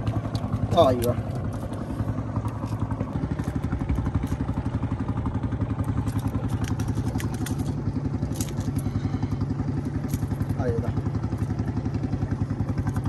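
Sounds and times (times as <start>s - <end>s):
small engine puttering: 0.0s - 13.0s
light clicks and clatter: 5.8s - 9.0s.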